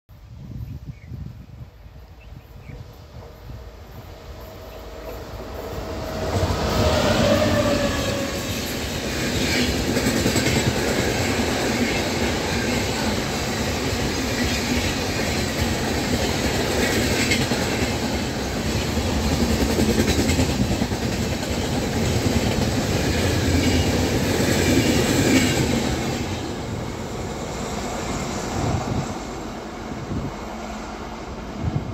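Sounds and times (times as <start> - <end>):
electric locomotive passing: 1.8 - 31.9
train wheels clacking over rails: 4.9 - 27.0.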